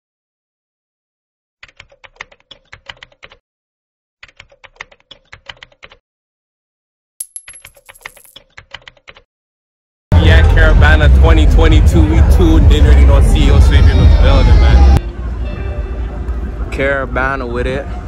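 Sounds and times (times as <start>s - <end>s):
rapid keyboard key clicks: 1.6s - 3.4s, 4.2s - 6.0s, 8.4s - 9.3s.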